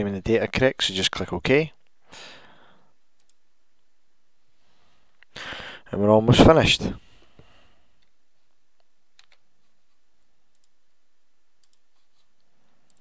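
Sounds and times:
low steady hiss: 0.0s - 13.0s
computer mouse clicks: 3.2s - 3.4s, 8.8s - 10.8s, 11.6s - 13.0s.

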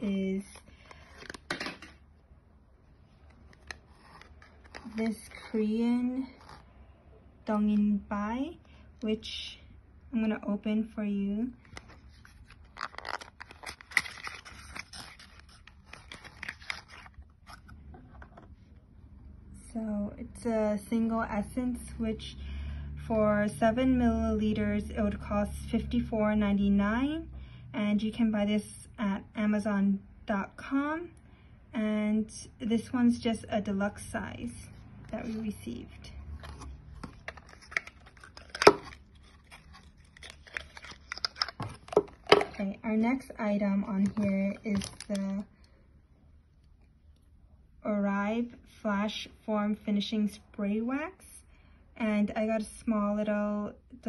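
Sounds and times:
packaging clicks and rustles: 11.6s - 18.4s, 36.4s - 42.7s, 43.9s - 45.5s.

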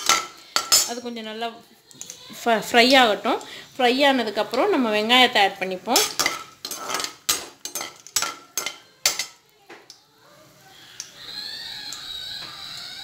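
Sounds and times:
oil frying hiss: 1.9s - 13.0s
metal skimmer scraping pan: 6.0s - 8.7s.

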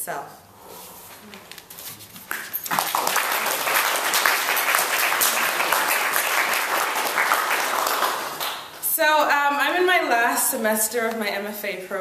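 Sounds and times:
audience applauding: 2.3s - 8.7s.

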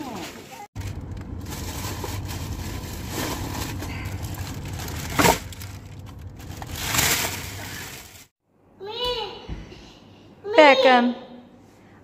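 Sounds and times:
plastic bags rustling: 0.0s - 8.4s.

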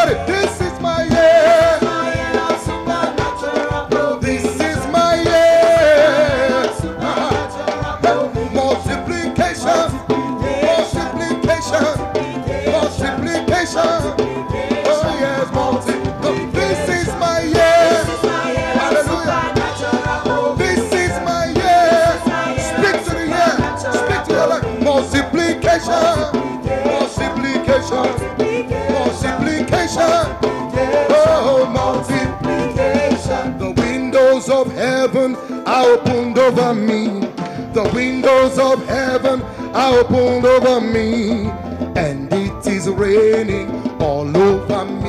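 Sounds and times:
voices singing along: 0.0s - 36.9s
band playing danceable beat: 0.0s - 45.0s.

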